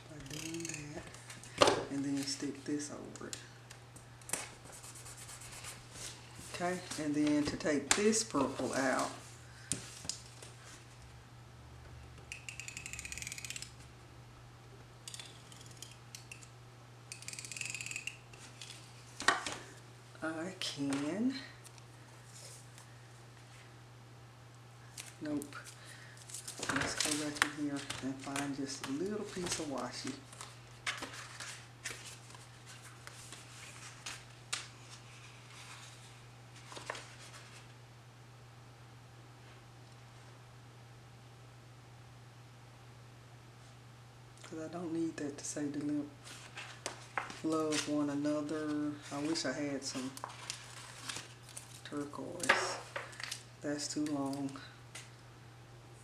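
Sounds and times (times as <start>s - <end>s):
faint steady hum: 0.0s - 56.0s
tape dispenser ratcheting clicks: 12.3s - 13.8s
paper sheets rustling: 26.3s - 37.7s, 46.2s - 48.1s, 48.9s - 53.4s.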